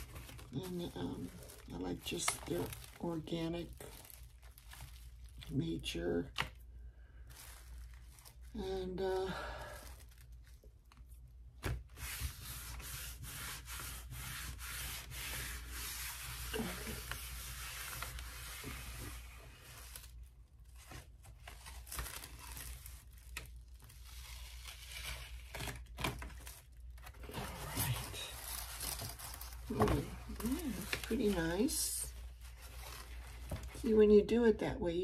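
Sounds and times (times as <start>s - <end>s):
hands rubbing paper: 11.9s - 20.2s.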